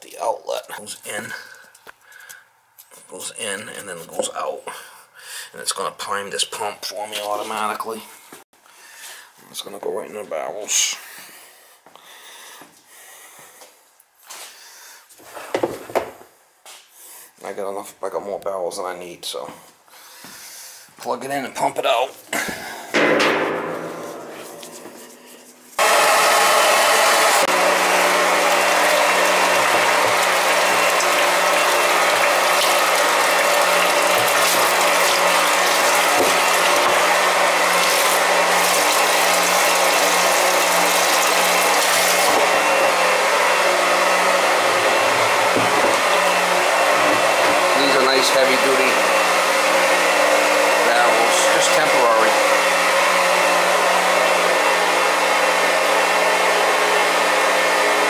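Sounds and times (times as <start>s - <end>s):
electric pump humming: 25.8s - 58.0s.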